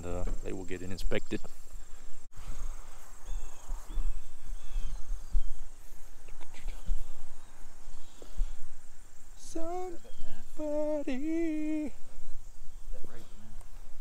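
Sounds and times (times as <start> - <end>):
high insect trill: 0.0 - 14.0
wind rumble on microphone: 2.4 - 10.6.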